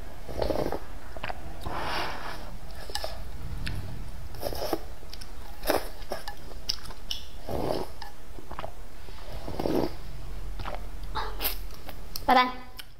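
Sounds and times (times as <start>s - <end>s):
person slurping noodles and broth: 0.2s - 3.3s, 4.4s - 4.9s, 7.4s - 11.7s
chewing: 4.4s - 10.0s, 10.6s - 12.9s.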